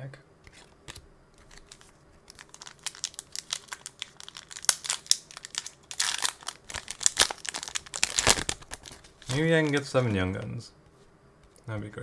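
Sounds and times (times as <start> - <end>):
foil wrapper tearing: 1.4 - 9.9
foil wrapper crinkling: 1.4 - 10.1.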